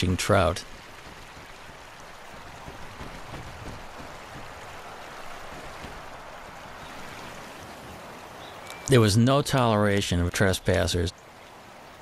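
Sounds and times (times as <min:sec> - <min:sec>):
steady rushing noise: 0:00.0 - 0:08.4.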